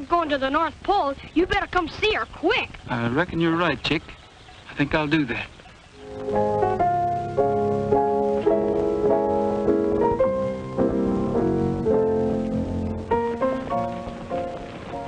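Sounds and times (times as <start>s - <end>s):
gentle piano chords: 4.7s - 15.0s.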